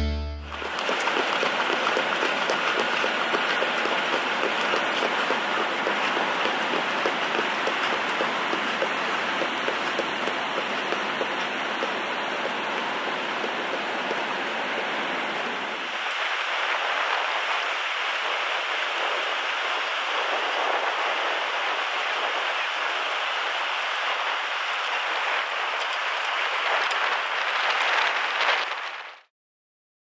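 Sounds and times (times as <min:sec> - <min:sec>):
wind: 0:00.4 - 0:29.3
surf breaking: 0:00.5 - 0:23.8.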